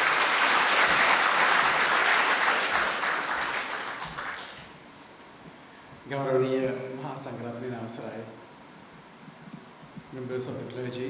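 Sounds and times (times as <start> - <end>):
audience applauding: 0.0 - 4.8.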